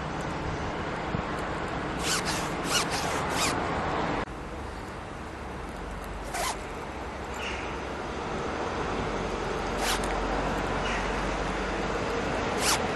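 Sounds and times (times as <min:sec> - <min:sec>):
outdoor background noise: 0:00.0 - 0:12.9
zipper strokes: 0:02.0 - 0:03.6, 0:06.3 - 0:06.6, 0:09.8 - 0:10.2, 0:12.5 - 0:12.9.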